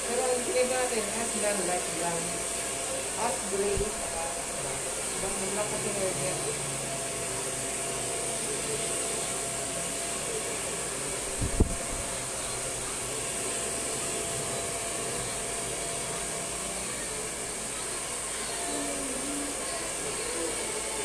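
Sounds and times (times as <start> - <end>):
hair dryer blowing: 0.0 - 21.0.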